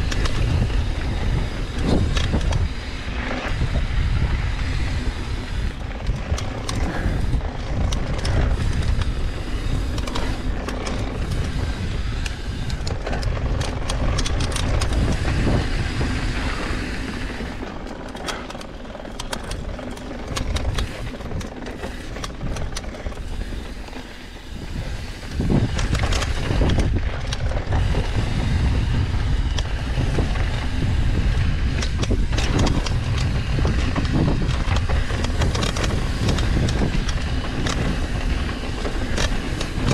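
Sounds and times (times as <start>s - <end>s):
bike rattling over bumps: 0.0s - 39.9s
wind rumble on microphone: 0.0s - 39.9s.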